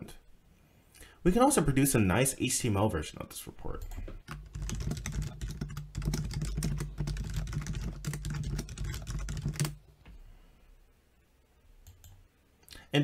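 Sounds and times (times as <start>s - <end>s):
rapid typing on keyboard: 3.8s - 9.9s.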